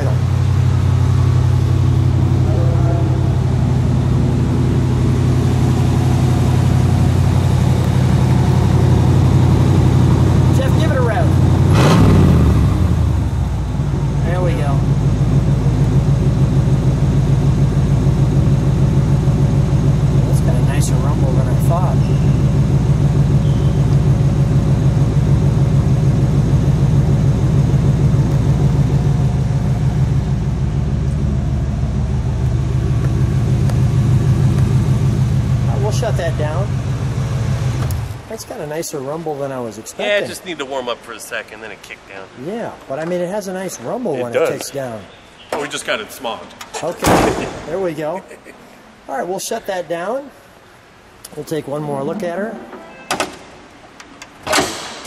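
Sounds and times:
car engine idling: 0:00.0 - 0:41.0.

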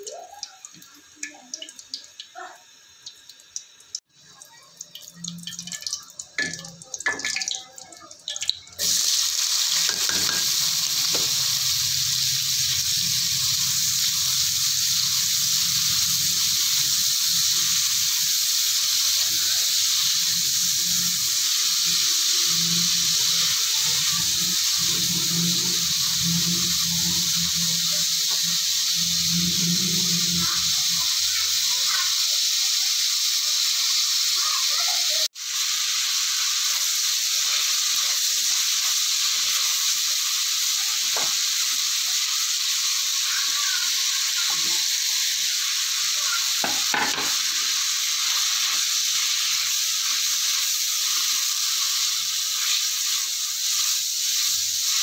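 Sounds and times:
vegetables sizzling in hot oil: 0:00.0 - 0:55.0
spatula scraping pan: 0:09.6 - 0:11.6.

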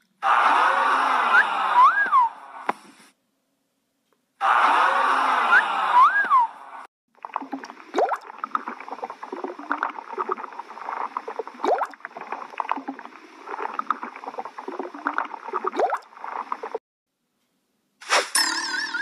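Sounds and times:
underwater bubbling and gurgling: 0:07.1 - 0:16.8
rising bubbly sweep: 0:07.2 - 0:16.8.

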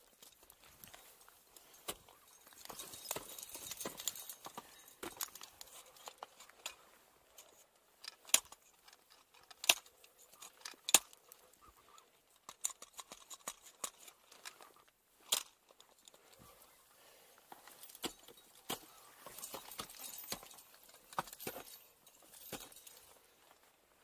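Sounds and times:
climbing hardware clinking: 0:00.0 - 0:16.8, 0:17.4 - 0:23.7.

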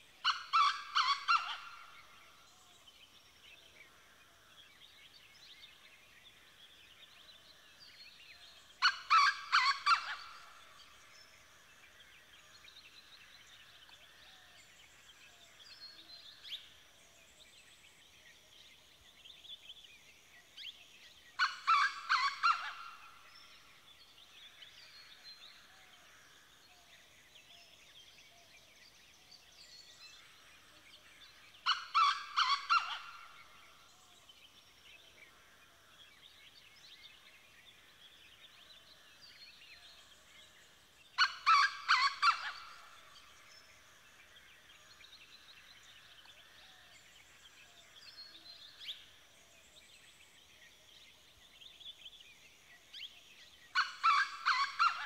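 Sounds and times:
small birds chirping: 0:30.9 - 0:35.2.

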